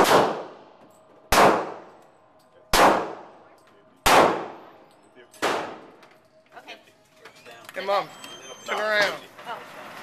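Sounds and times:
pistol shots echoing indoors: 0.0s - 3.4s, 4.0s - 6.0s.

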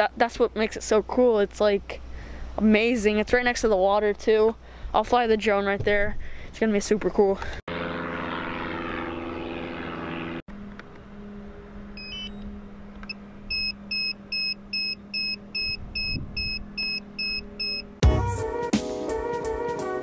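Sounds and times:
steady low hum: 7.4s - 18.0s
short electronic beeps: 12.0s - 12.4s, 13.1s - 17.9s
music with brass: 18.0s - 20.0s.

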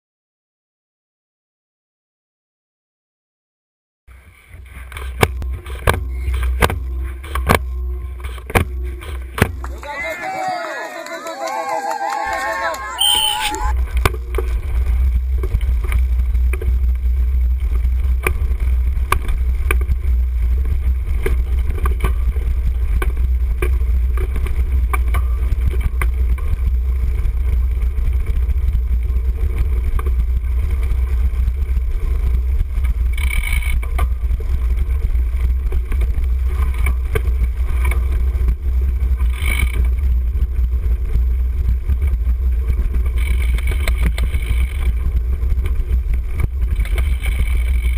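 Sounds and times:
wind rumble on camera: 13.0s - 47.9s
bike rattles over bumps: 13.7s - 47.9s.

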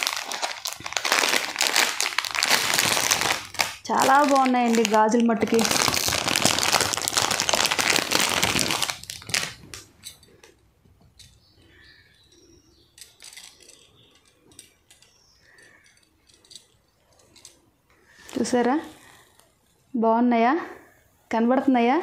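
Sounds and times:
plastic packet crinkling: 0.0s - 10.0s
metal bangles clinking: 9.0s - 11.5s, 12.1s - 17.8s.

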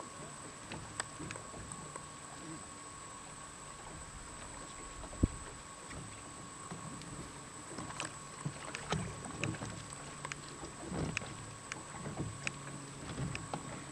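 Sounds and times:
water lapping against boat hull: 0.0s - 13.9s
small knocks and clunks: 5.9s - 13.9s.

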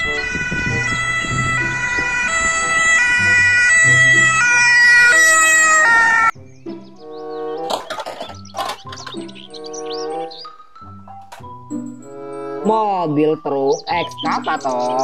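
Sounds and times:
electronic ambulance siren: 0.0s - 6.4s.

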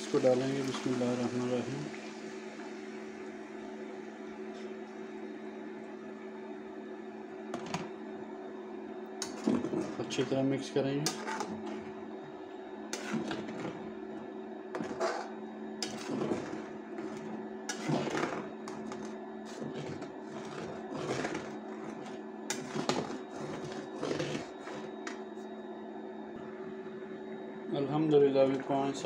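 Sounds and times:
steady hum: 0.0s - 29.0s
spatula scraping pan: 11.1s - 11.9s, 12.9s - 13.8s, 14.8s - 25.1s.

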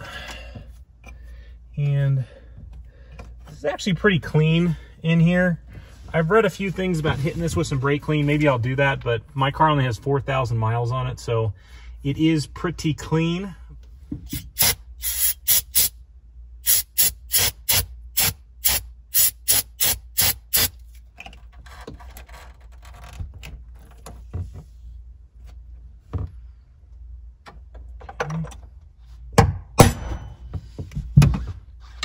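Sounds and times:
aerosol spray bursts: 14.4s - 15.9s, 16.6s - 20.7s.

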